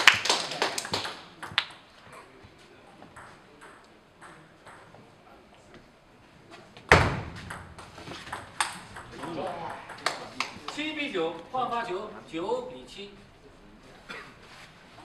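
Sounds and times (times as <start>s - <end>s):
loud sharp knock: 6.9s - 7.9s.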